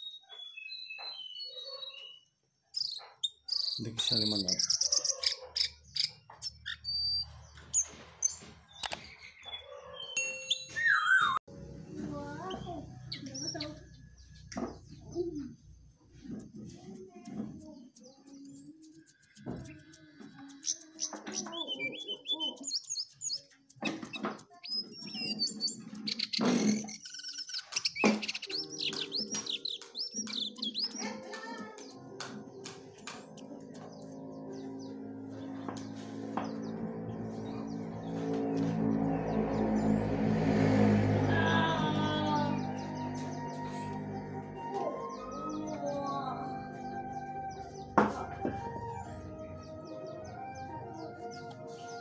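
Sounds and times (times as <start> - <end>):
songbird chirping and whistling: 0.0 - 11.4, 18.3 - 32.4, 42.4 - 52.0.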